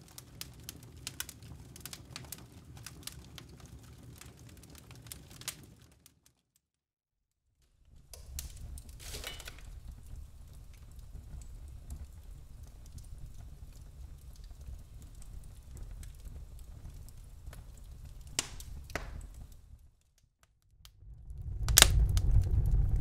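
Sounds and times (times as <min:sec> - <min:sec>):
firewood crackling and popping: 0:00.0 - 0:06.6, 0:07.6 - 0:23.0
low steady rumble: 0:20.9 - 0:23.0.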